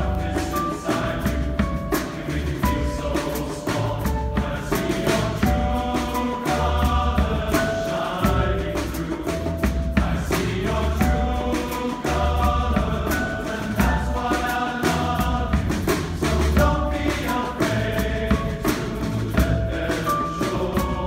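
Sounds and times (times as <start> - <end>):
drum kit: 0.0 - 21.0
hand drum: 0.0 - 21.0
male choir singing in harmony: 0.0 - 21.0
upright bass: 0.0 - 21.0.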